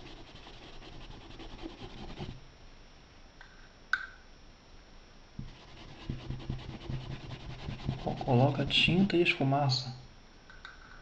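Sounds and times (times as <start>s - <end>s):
paintbrush scrubbing on fabric: 0.0s - 2.4s, 5.4s - 9.1s.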